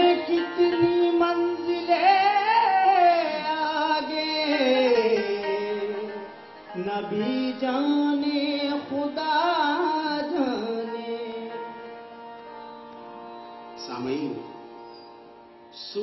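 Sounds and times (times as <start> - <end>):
man singing ornamented phrases: 0.0 - 11.9
harmonium holding steady notes: 0.0 - 16.0.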